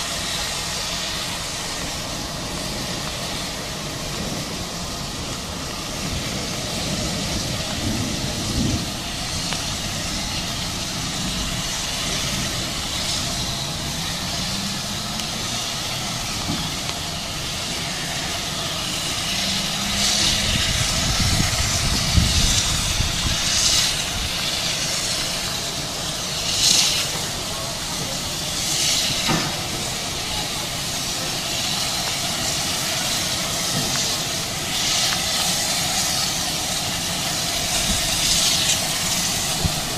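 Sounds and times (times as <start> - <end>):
bursts of steam hiss: 0.0 - 39.9
low rumble of locomotive: 0.0 - 39.9
steam locomotive hissing: 0.0 - 39.9.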